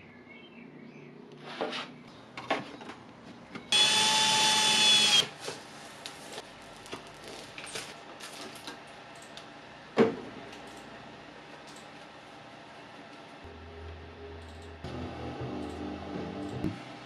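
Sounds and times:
electric drill drilling plastic: 0:03.7 - 0:05.3.

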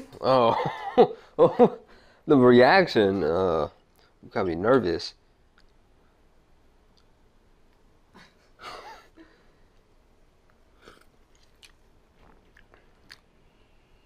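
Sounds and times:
faint mouth sounds: 0:10.5 - 0:14.0.

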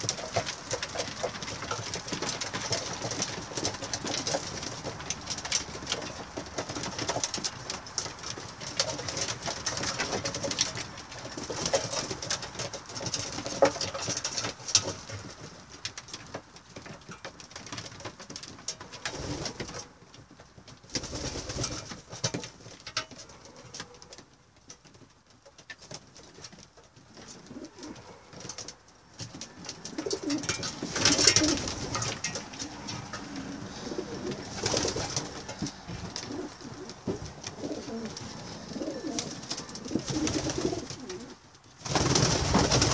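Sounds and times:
clicks and rustling of birds: 0:00.0 - 0:42.9
pigeons cooing: 0:27.4 - 0:28.4, 0:29.5 - 0:41.4.

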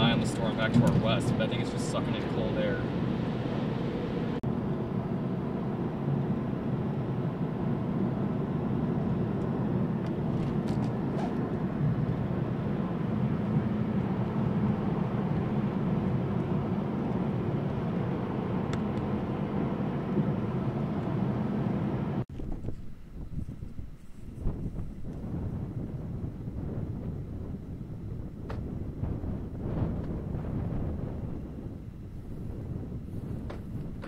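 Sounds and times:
car road and engine noise: 0:00.0 - 0:34.0.

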